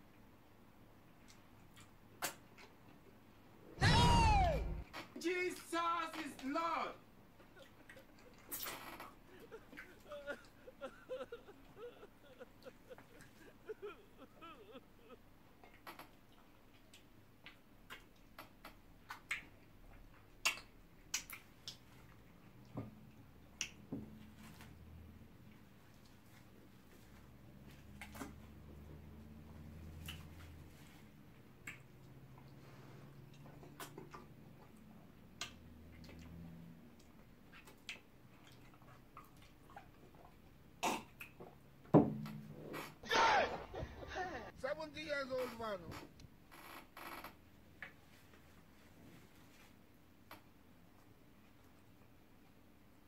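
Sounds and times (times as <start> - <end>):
chewing and lip smacks: 1.1 - 3.1, 16.3 - 23.8, 29.9 - 31.0, 31.6 - 32.6, 33.2 - 41.6
loud sharp thump: 3.8 - 4.8.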